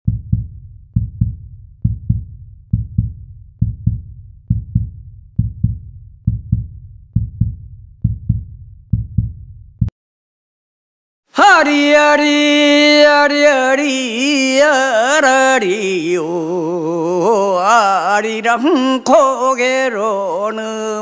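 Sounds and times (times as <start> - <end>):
heartbeat thumps: 0.1 - 9.9.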